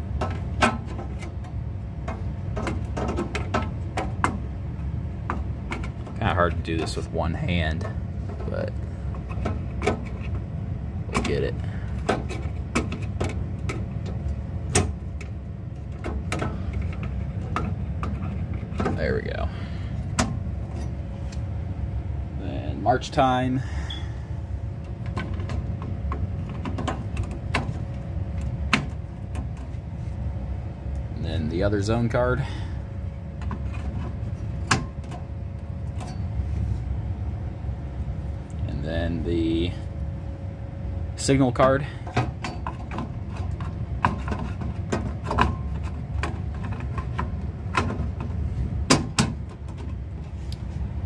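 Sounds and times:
steady low rumble: 0:00.0 - 0:51.0.

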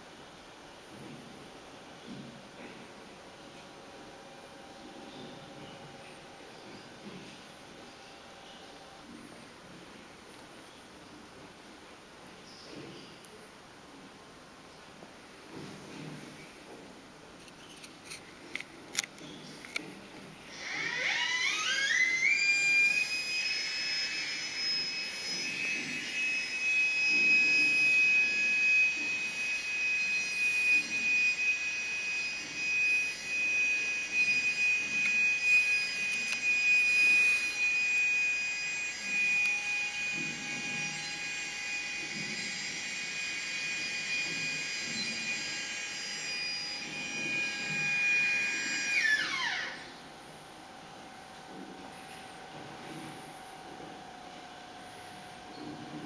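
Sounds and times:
electric motor whining: 0:20.5 - 0:50.1.

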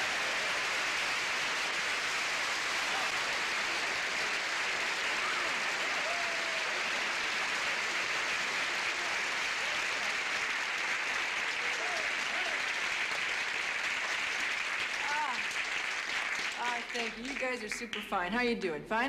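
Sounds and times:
audience applauding: 0:00.0 - 0:18.2
faint crowd shouts: 0:05.0 - 0:07.2.

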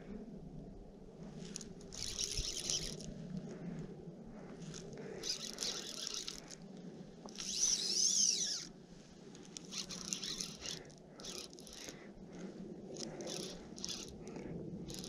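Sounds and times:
rustling and scraping of fishing line: 0:01.2 - 0:15.0
fishing reel whir: 0:01.5 - 0:03.2, 0:04.8 - 0:06.6, 0:07.3 - 0:08.8, 0:09.6 - 0:15.0.

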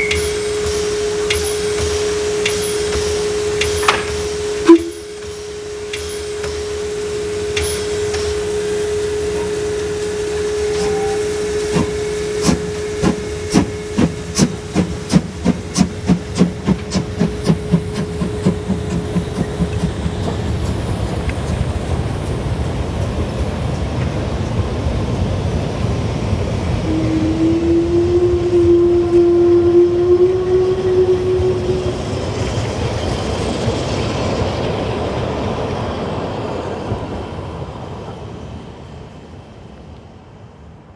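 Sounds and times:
held whistle tone: 0:00.0 - 0:15.2, 0:26.8 - 0:32.6
drawn-out tone: 0:00.0 - 0:21.4, 0:26.6 - 0:34.8
hiss of steam: 0:00.0 - 0:27.8
steam locomotive exhaust chuffs: 0:00.0 - 0:40.9.

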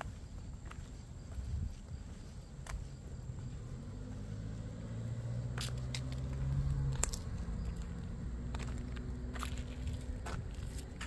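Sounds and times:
footsteps clicking: 0:00.0 - 0:04.2, 0:05.5 - 0:11.0
vehicle engine passing: 0:02.3 - 0:11.0.

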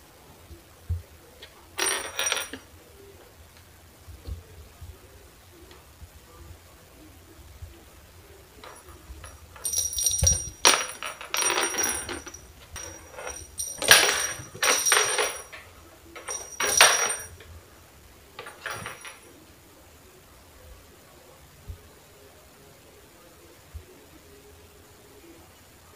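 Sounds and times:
small bell jingling: 0:08.6 - 0:15.6, 0:16.2 - 0:17.4.

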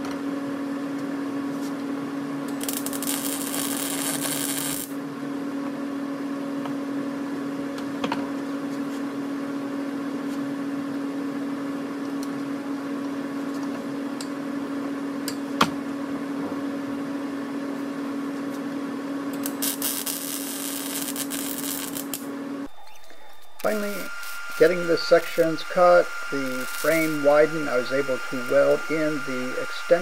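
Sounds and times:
electrical hum: 0:00.7 - 0:30.0
welding arc crackling: 0:02.5 - 0:05.0, 0:19.4 - 0:30.0.

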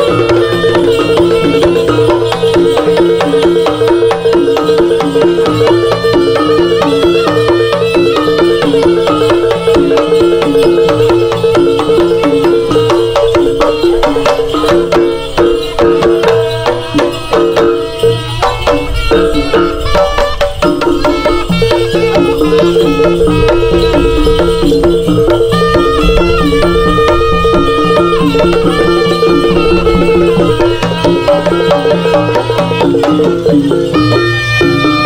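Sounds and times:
drums and percussion: 0:00.0 - 0:35.0
steady held high note: 0:05.5 - 0:35.0
repeating two-note melody: 0:13.6 - 0:35.0.

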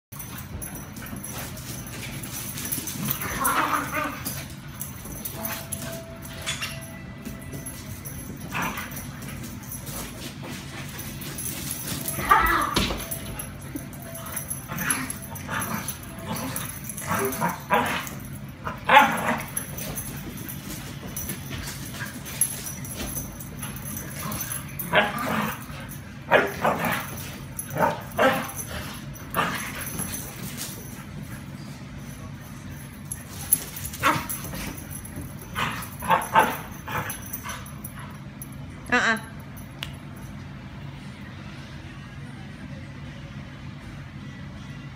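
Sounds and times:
dogs barking: 0:18.7 - 0:19.6, 0:26.3 - 0:29.7, 0:33.9 - 0:34.5, 0:35.6 - 0:37.4.

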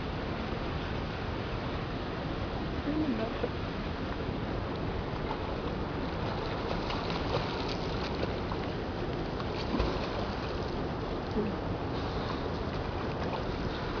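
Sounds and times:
splashing of person swimming: 0:06.2 - 0:08.6, 0:09.4 - 0:10.8.

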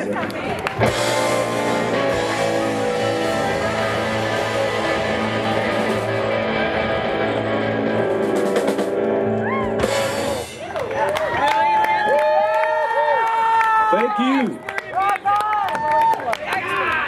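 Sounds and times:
drum kit: 0:00.0 - 0:11.1
live rock band playing: 0:00.0 - 0:11.4
electric guitars: 0:00.0 - 0:11.8.

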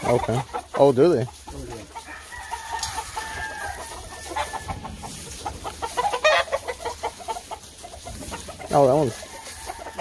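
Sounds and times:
rooster crowing: 0:02.0 - 0:05.0, 0:09.0 - 0:10.0.

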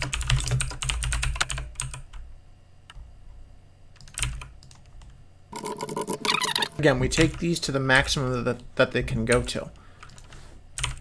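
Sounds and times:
typing on computer keyboard: 0:00.0 - 0:02.2, 0:04.0 - 0:06.6, 0:10.0 - 0:11.0.

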